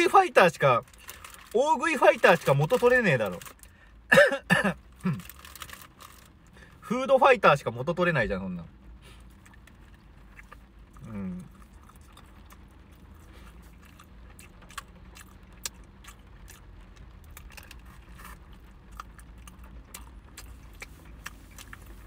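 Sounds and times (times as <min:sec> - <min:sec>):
low steady hum: 0:00.0 - 0:22.0
man chewing food: 0:09.0 - 0:22.0
wet mouth clicks and smacks: 0:19.9 - 0:21.9.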